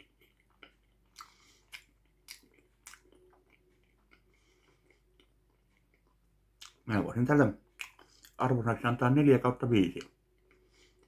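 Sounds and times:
person chewing food: 0.0 - 6.8, 7.6 - 8.4, 10.0 - 11.0.

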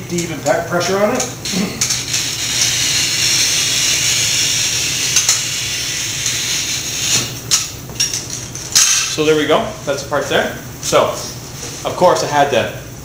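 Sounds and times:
glass cutter scoring glass: 1.4 - 7.8.

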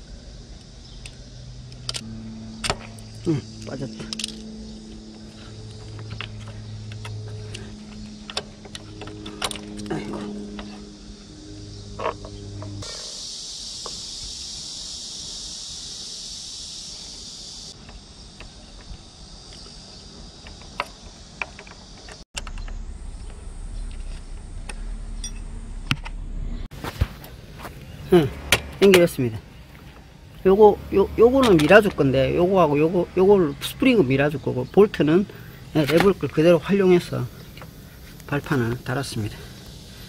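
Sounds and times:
steady low hum: 0.0 - 40.0
high hiss: 12.8 - 25.2, 35.1 - 40.0.

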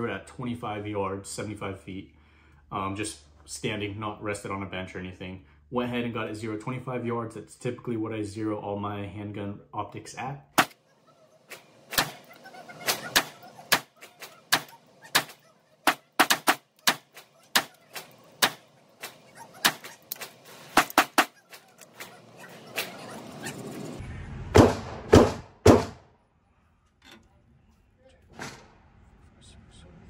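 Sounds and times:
low rumble: 23.7 - 25.2.

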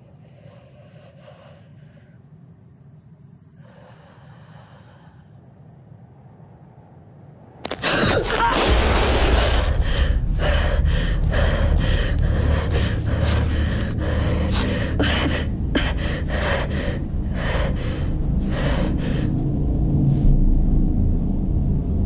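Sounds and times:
low rumble: 5.4 - 22.0
woman gasping and panting: 7.7 - 19.3.

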